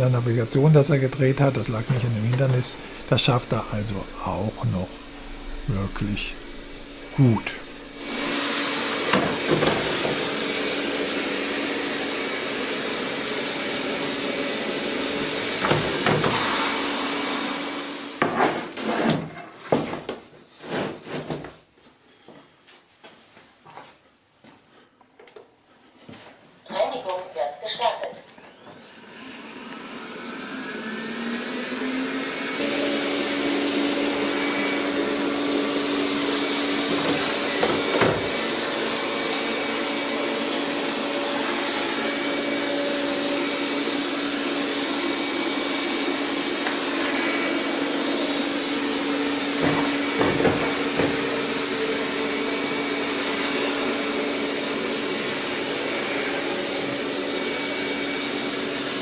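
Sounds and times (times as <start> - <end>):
robot vacuum humming: 0.0 - 18.2, 28.3 - 59.0
robot vacuum bumping threshold: 1.5 - 8.1.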